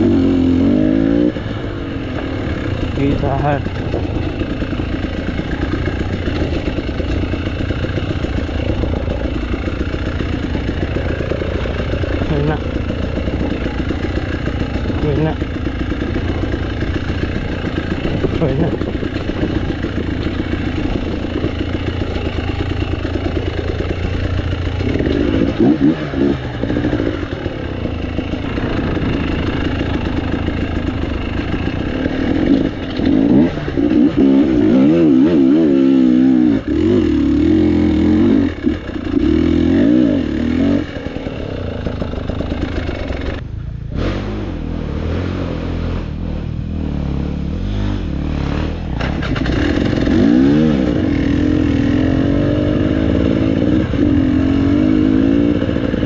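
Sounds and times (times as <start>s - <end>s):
motorcycle clattering: 0.0s - 43.5s, 48.8s - 56.0s
motorcycle engine revving: 0.0s - 56.0s.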